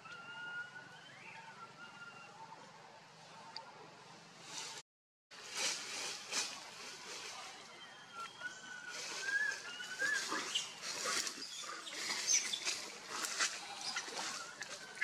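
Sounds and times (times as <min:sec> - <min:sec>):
macaques calling harshly: 0:09.2 - 0:14.5.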